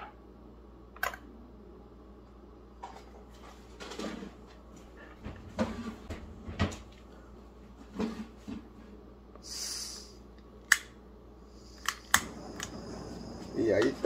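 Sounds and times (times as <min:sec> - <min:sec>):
gas hiss: 0:09.4 - 0:10.2, 0:11.5 - 0:14.0
lighter clicks: 0:11.8 - 0:12.8.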